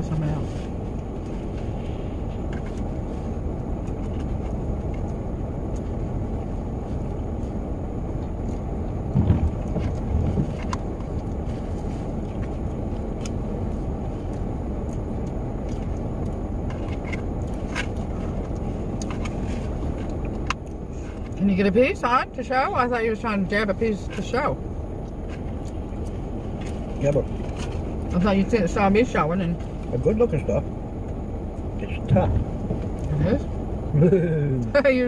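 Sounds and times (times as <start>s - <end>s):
low rumble inside vehicle cabin: 0.0s - 35.0s.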